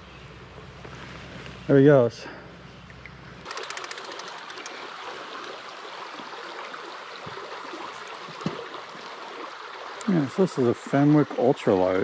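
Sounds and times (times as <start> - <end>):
creek water flowing: 3.4 - 12.0.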